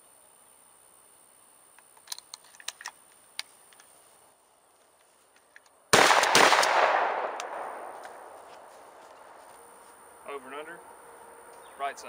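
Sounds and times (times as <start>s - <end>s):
faint clicks of shells: 1.8s - 3.9s, 5.0s - 5.8s
shotgun shot with echo: 5.9s - 8.4s.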